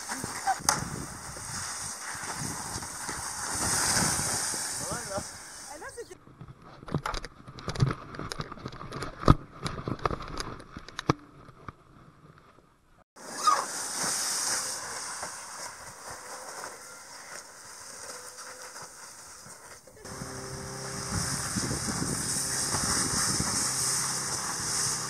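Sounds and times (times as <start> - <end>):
kayak sliding down tarp: 0.0 - 6.1, 13.2 - 25.0.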